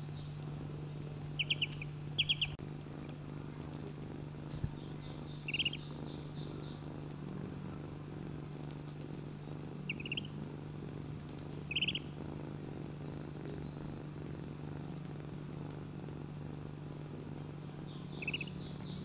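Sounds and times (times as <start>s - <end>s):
kitten purring: 0.0s - 19.0s
duckling peeping: 1.4s - 2.6s, 4.7s - 6.8s, 9.2s - 10.4s, 11.4s - 12.2s, 17.9s - 19.0s.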